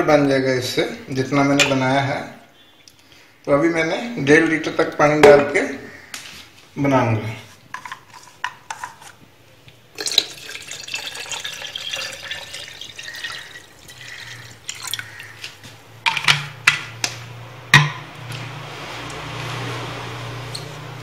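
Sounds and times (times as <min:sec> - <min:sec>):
water pouring and splashing: 0:09.9 - 0:15.6
containers knocking: 0:16.0 - 0:17.0, 0:17.7 - 0:18.1.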